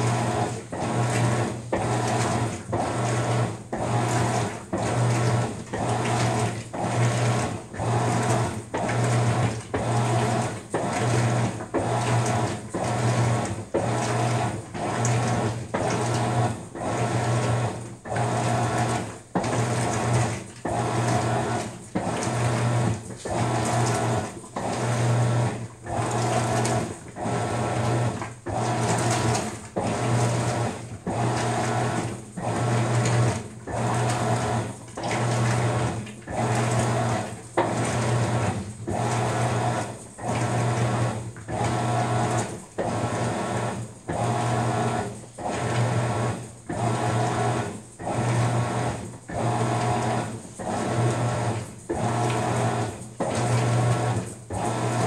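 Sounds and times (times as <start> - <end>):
laundry churning: 0.0 - 55.0
washing machine motor hum: 0.0 - 55.0.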